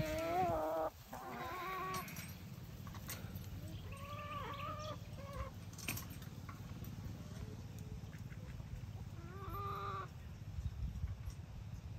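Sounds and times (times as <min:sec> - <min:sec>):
hens calling: 0:00.0 - 0:02.6, 0:03.6 - 0:05.7, 0:08.0 - 0:10.2.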